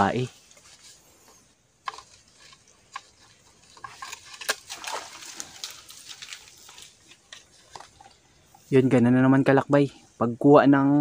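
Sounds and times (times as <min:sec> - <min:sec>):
wet mud squelching: 0:00.4 - 0:08.8.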